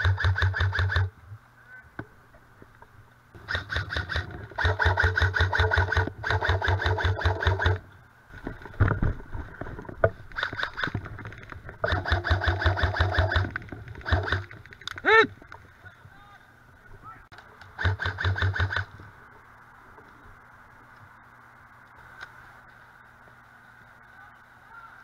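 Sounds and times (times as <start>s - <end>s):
airsoft gun rapid rattle: 0.0s - 1.1s, 3.4s - 7.8s, 10.3s - 15.0s, 17.4s - 19.0s
person shouting: 15.0s - 15.3s.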